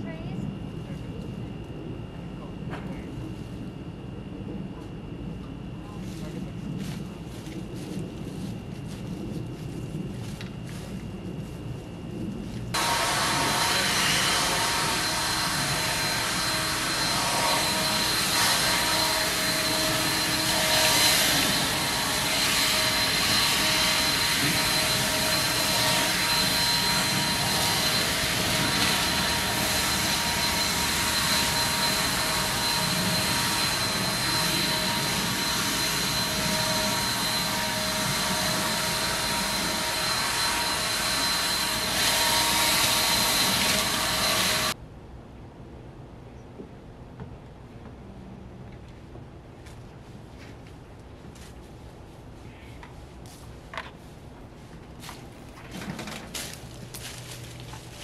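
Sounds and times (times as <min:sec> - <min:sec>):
leaf blower running: 0:12.7 - 0:44.8.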